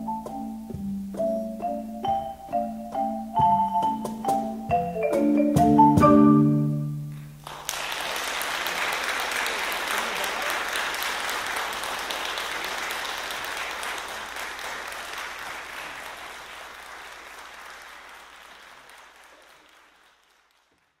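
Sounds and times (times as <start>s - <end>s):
audience applauding: 7.1s - 21.0s.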